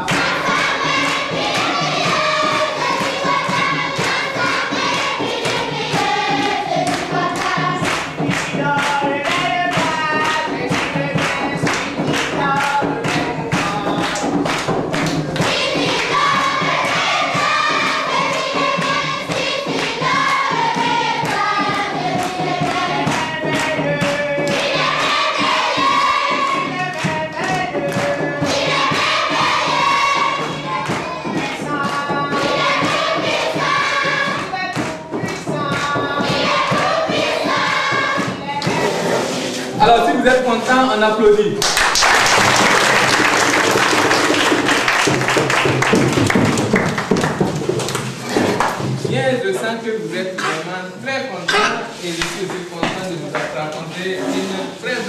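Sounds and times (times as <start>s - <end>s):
children singing: 0.0s - 40.1s
rhythmic hand clapping: 0.0s - 50.9s, 51.5s - 55.0s.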